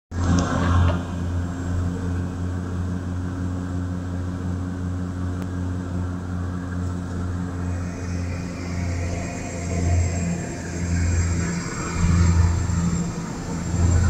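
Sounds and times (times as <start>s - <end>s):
airflow noise: 0.1s - 14.0s
propeller plane engines droning: 0.1s - 14.0s.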